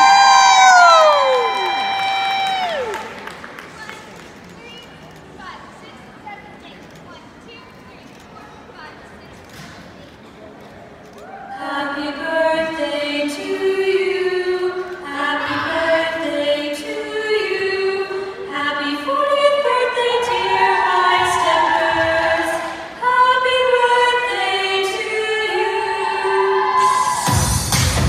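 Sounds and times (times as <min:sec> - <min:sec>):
women singing a cappella chords: 0:11.5 - 0:27.3.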